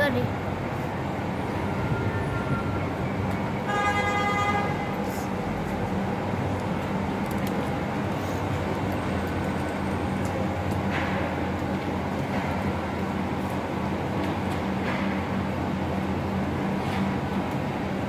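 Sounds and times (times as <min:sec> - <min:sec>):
traffic rumble: 0:00.0 - 0:18.0
vehicle horn: 0:03.7 - 0:05.0.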